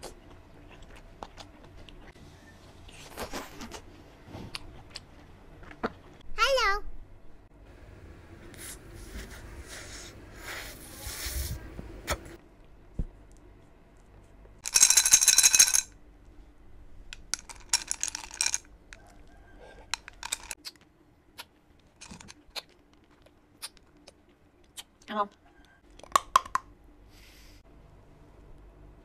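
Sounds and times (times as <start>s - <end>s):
crunching and chewing cookie: 0.0s - 2.1s, 18.9s - 26.3s
chocolate pieces rattling in cup: 14.6s - 15.9s, 17.2s - 18.7s, 20.0s - 20.6s, 22.0s - 22.4s.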